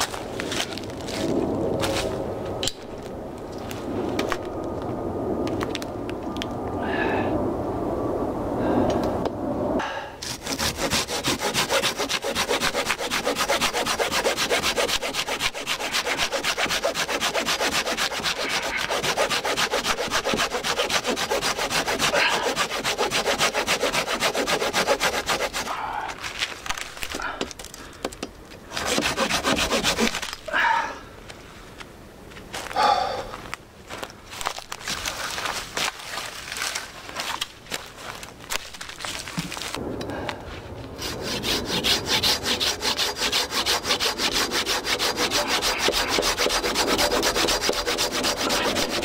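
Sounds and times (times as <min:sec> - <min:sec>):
hand saw cutting firewood: 0:10.2 - 0:25.7, 0:28.7 - 0:30.5, 0:41.0 - 0:49.0.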